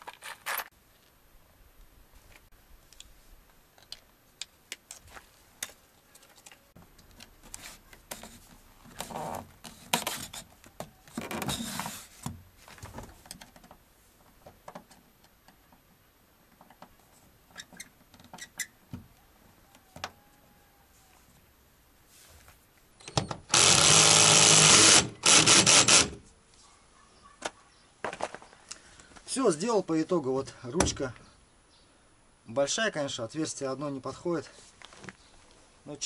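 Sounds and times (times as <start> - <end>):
scraping and rustling: 4.9 - 14.4.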